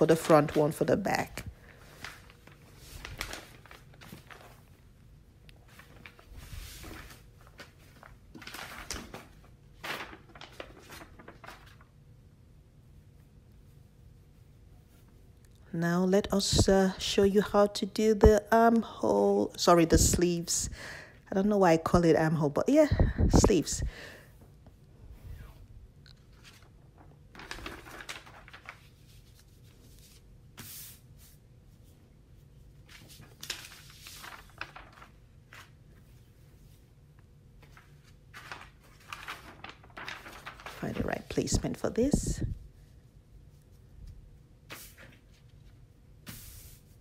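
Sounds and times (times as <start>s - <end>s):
fabric and paper rustling: 0.0s - 5.0s, 5.6s - 12.0s, 16.3s - 17.6s, 22.8s - 47.0s.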